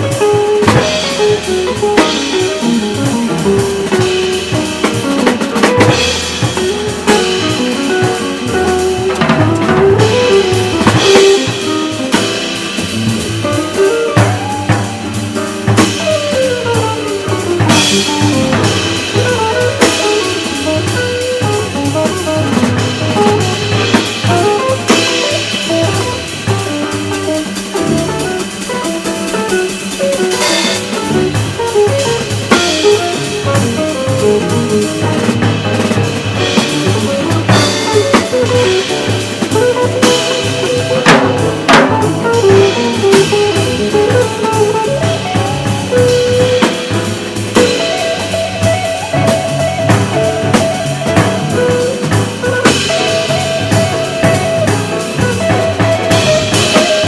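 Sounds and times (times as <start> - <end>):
drum kit: 0.0 - 57.0
piano: 0.0 - 57.0
upright bass: 0.0 - 57.0
electric guitar: 15.8 - 28.4, 29.4 - 57.0.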